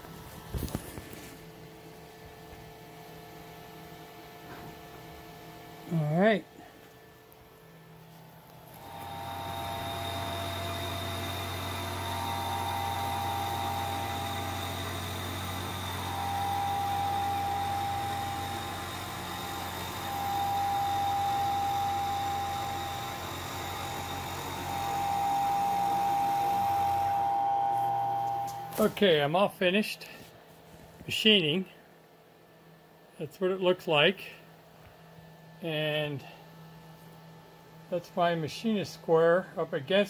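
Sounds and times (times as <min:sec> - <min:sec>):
milling machine cutting: 0:08.6 - 0:28.9.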